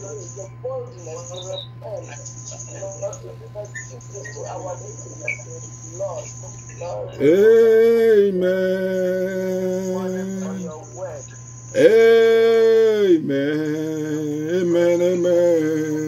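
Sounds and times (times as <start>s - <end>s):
steady electrical hum: 0.0s - 16.0s
man chanting long held notes: 7.2s - 11.1s, 11.8s - 16.0s.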